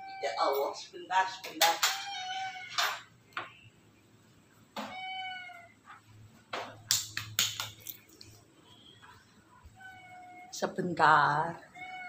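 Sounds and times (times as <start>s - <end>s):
cat meowing: 1.8s - 3.0s, 4.8s - 5.8s, 9.7s - 10.5s, 11.6s - 12.0s.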